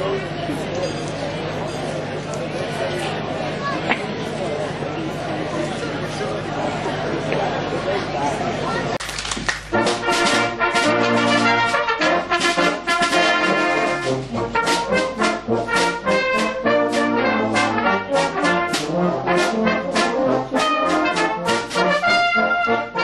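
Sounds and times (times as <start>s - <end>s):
brass band playing: 9.7s - 23.0s.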